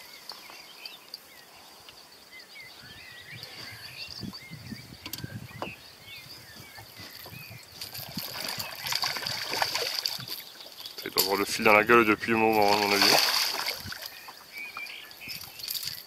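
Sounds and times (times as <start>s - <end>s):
small birds chirping: 0.0s - 16.0s
fish splashing in water: 7.8s - 10.7s, 12.6s - 14.4s.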